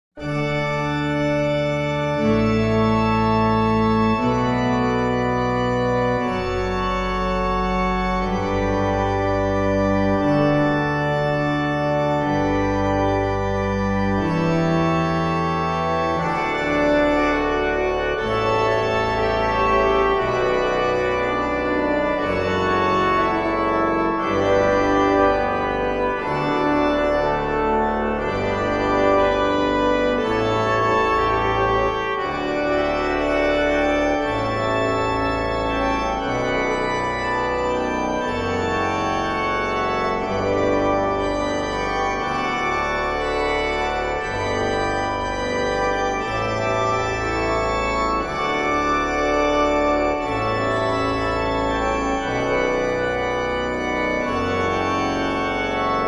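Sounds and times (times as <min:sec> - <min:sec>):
organ-like keyboard chords: 0:00.2 - 0:56.0.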